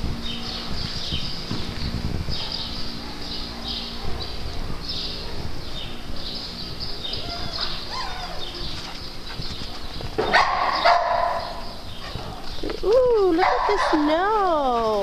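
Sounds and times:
dogs scuffling: 7.1 - 15.0
dog barking loudly: 10.2 - 12.2, 13.4 - 14.4.

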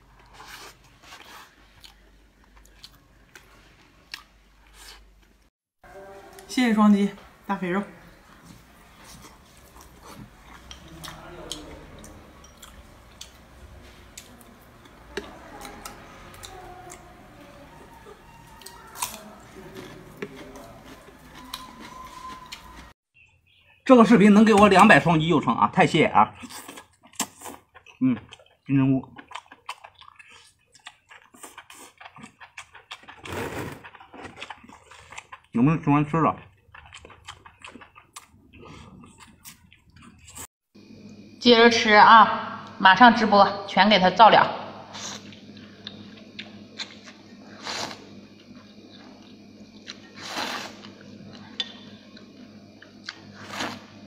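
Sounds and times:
person chewing with wet smacks: 0.1 - 5.0, 8.2 - 22.9, 26.4 - 35.6, 36.3 - 40.4.

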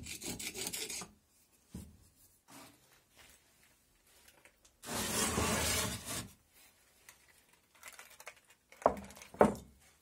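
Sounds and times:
wooden board scraping on wood: 4.8 - 6.4.

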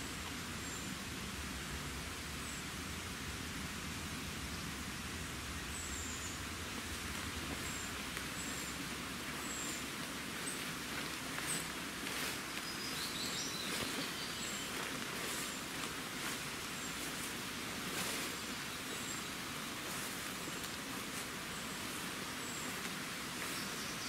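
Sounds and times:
footsteps through wet plants: 6.9 - 24.0
birdsong: 7.3 - 24.0.

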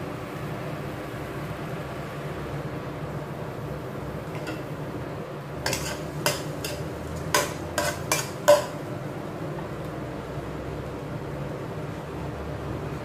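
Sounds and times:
metal spoon scraping a pot: 5.6 - 8.8.

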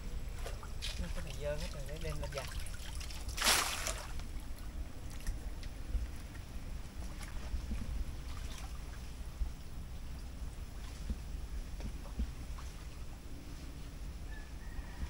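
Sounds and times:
steady low rumble: 0.0 - 15.0
water sloshing around wading person: 0.0 - 15.0
small splashes: 0.4 - 5.4, 6.2 - 9.1.

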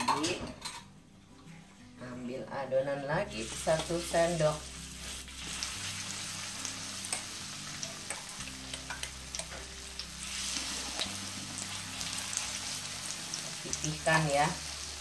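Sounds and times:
batter sizzling in hot oil: 3.4 - 15.0.

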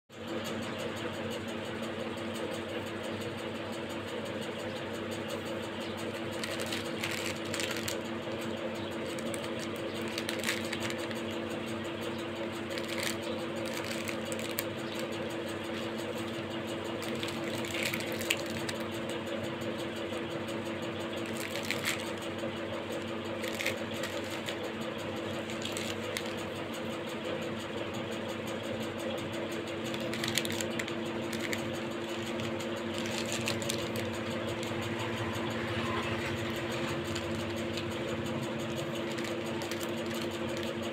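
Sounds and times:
steady machine hum: 0.1 - 40.9
plastic wrappers crinkling: 6.2 - 19.0, 21.2 - 22.3, 23.0 - 26.5, 29.9 - 34.9, 38.5 - 40.9.

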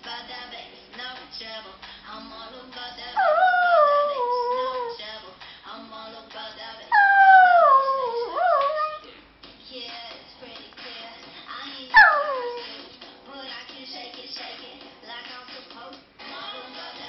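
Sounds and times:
pop song: 0.0 - 17.0
dog howling: 3.2 - 5.0, 6.9 - 9.1, 12.0 - 12.8.

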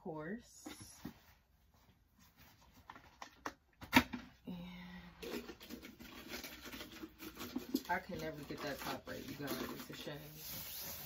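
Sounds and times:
plastic rubbing and rustling: 5.2 - 11.0.

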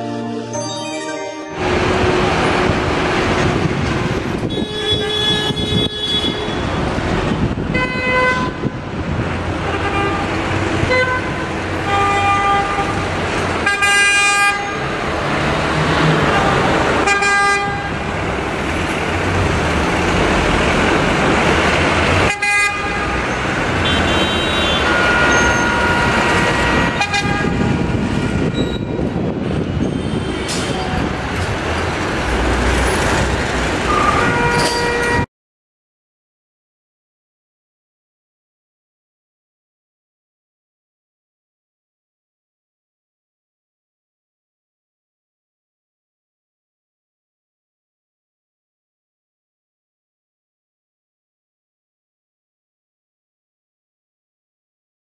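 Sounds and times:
road traffic: 0.0 - 35.3
vehicle horns tooting: 4.4 - 6.8, 7.7 - 8.8, 9.6 - 14.9, 16.2 - 18.0, 22.2 - 31.2, 33.8 - 35.3.

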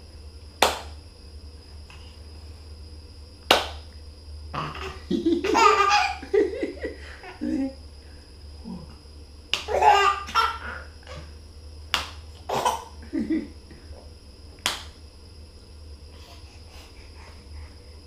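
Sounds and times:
hand claps: 0.6 - 1.0, 3.5 - 3.9, 9.5 - 9.7, 11.9 - 12.2, 14.6 - 15.0
baby laughing: 4.6 - 6.3, 9.6 - 10.9.

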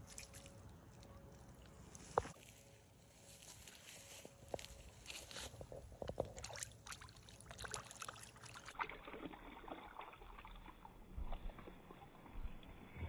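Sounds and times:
small water splashes: 6.0 - 12.7.

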